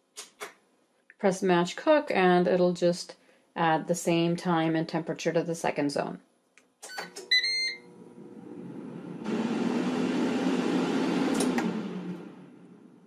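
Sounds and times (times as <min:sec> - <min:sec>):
air fryer fan whooshing: 0:08.0 - 0:13.0.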